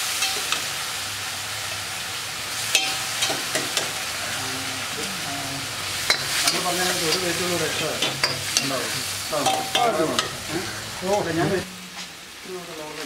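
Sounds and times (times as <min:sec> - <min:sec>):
frying sizzle: 0:00.0 - 0:13.0.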